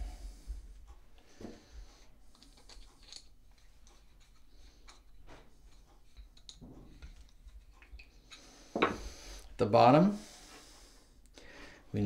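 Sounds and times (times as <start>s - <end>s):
screwdriver clicking and scraping: 2.3s - 8.4s.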